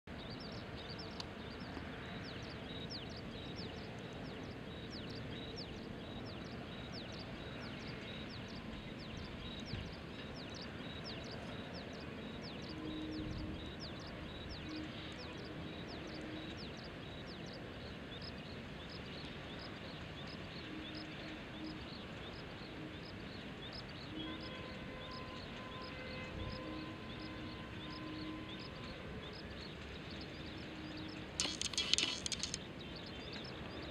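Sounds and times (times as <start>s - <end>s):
rapid high-pitched chirping: 31.4s - 32.6s.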